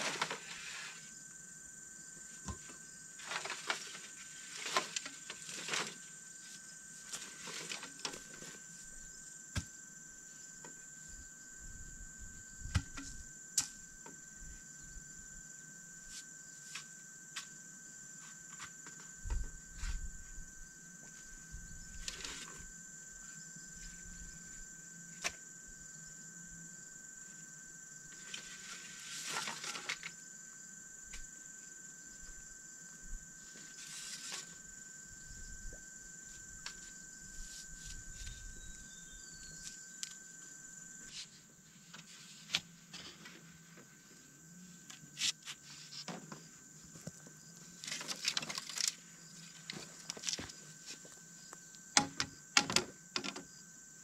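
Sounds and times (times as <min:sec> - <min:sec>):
insects buzzing: 0:00.0 - 0:54.0
bamboo poles knocking and rustling: 0:02.4 - 0:06.0, 0:12.7 - 0:13.8, 0:47.8 - 0:49.0, 0:52.0 - 0:53.5.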